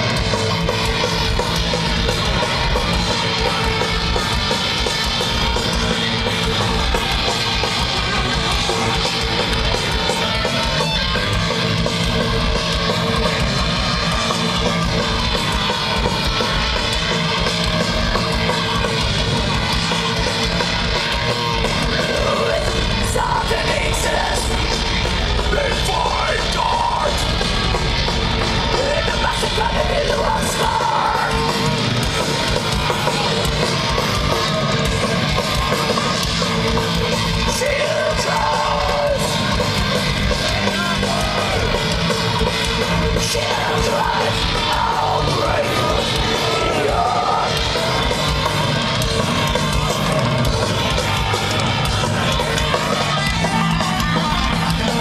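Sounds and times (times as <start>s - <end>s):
thrash metal band playing: 0.0s - 55.0s
shouted vocals: 21.9s - 27.5s, 28.2s - 36.4s, 37.3s - 42.2s, 43.0s - 48.5s, 49.4s - 55.0s.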